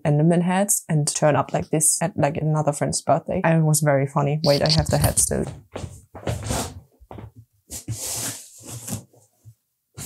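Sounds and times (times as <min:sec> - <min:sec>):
cardboard scraping against hair: 0:06.2 - 0:06.9, 0:07.7 - 0:09.3.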